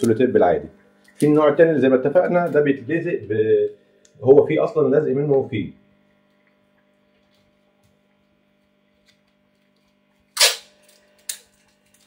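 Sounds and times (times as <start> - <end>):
faint steady hum: 0.0 - 12.0
plastic film rustling: 2.2 - 3.4.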